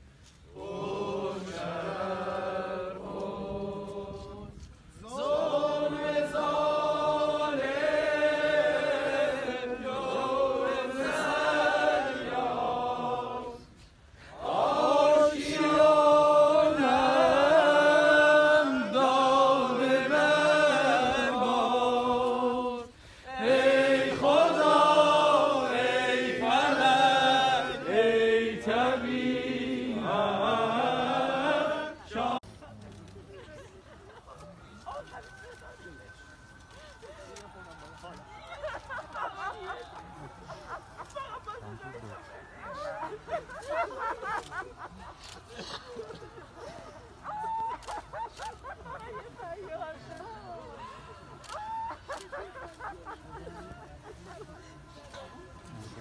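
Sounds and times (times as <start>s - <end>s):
crowd singing in unison: 0.5s - 32.5s.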